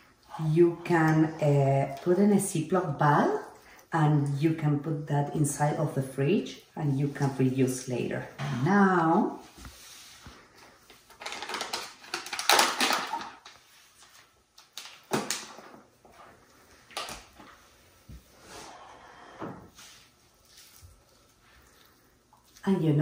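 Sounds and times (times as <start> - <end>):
paper bag rustling and crinkling: 10.4 - 15.9.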